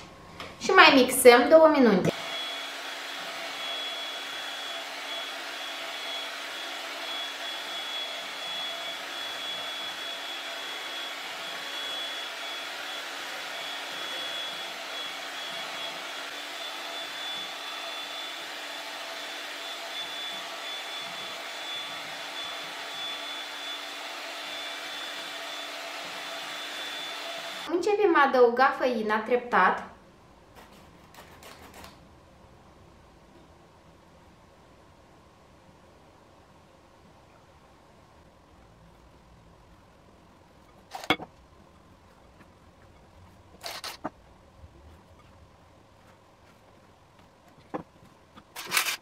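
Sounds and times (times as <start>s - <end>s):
electric hand mixer whirring: 2.1s - 27.7s.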